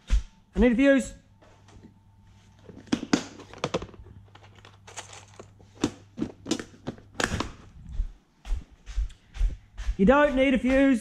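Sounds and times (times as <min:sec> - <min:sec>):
plastic boxes rattling: 0:02.6 - 0:07.7.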